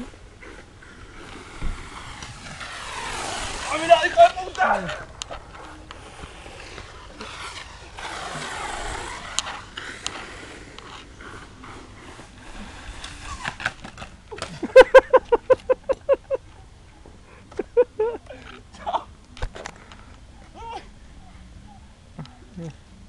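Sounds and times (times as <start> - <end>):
faint scraping and rustling: 0.0 - 14.6.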